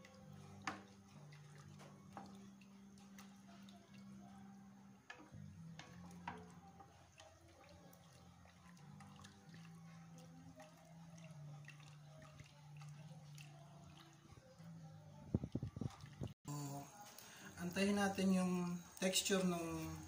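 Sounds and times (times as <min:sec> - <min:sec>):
wooden spoon stirring stew: 0:00.0 - 0:16.0.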